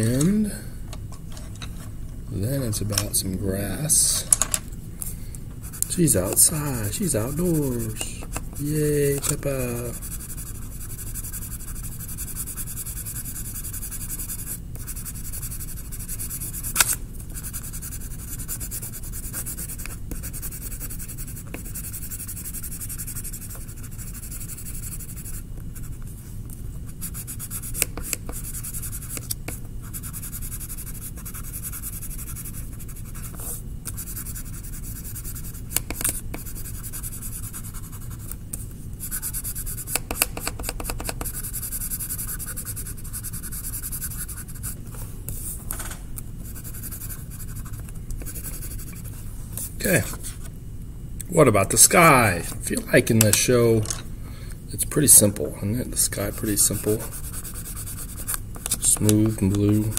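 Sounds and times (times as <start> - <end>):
pencil scratching on paper: 5.6 - 26.0, 26.9 - 38.3, 39.0 - 44.8, 46.4 - 49.1, 55.9 - 59.9.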